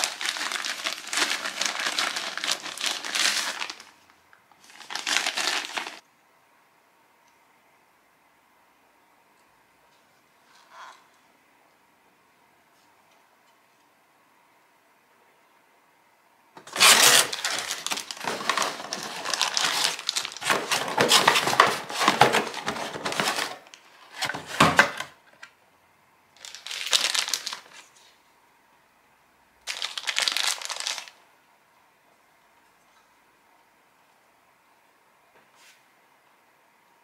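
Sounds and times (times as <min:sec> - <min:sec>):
plastic bag crinkling: 0:00.0 - 0:06.0, 0:16.6 - 0:24.6, 0:26.4 - 0:27.9, 0:29.6 - 0:31.2.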